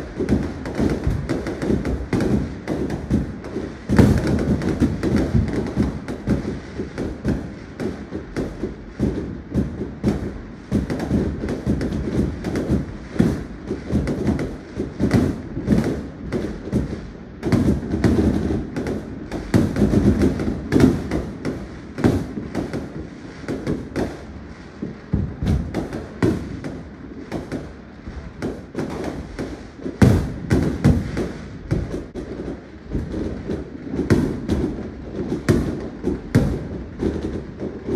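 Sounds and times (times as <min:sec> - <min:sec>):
fireworks booming and banging: 0:00.0 - 0:37.9.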